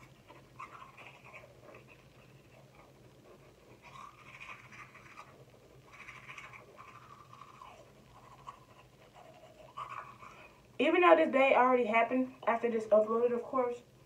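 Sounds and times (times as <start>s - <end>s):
toothbrush scrubbing teeth: 0.0s - 10.7s.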